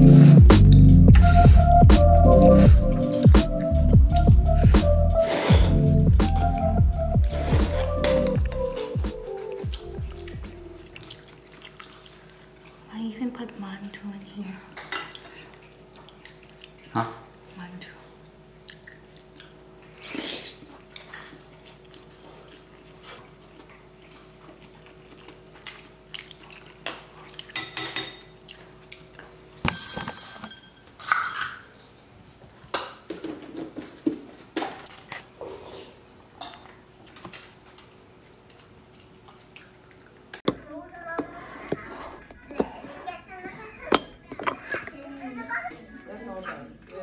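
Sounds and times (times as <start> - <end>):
dog crunching food: 9.5 - 12.9
utensils clinking on ceramic bowl: 27.5 - 28.4, 29.7 - 32.1.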